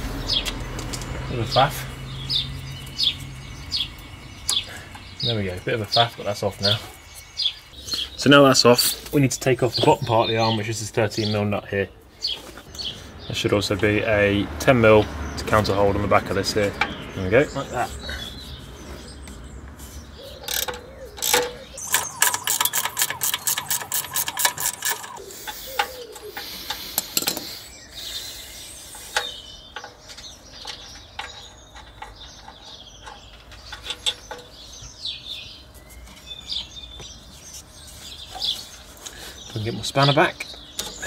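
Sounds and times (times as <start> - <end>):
birds chirping: 0.0 - 41.0
metal clicks and clinks: 20.4 - 27.5, 29.2 - 34.6
socket ratchet clicking: 20.4 - 27.5.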